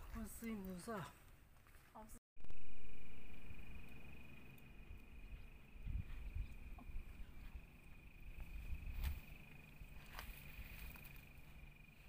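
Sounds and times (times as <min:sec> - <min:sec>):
low microphone rumble: 0:02.4 - 0:11.9
insect trill: 0:02.4 - 0:12.0.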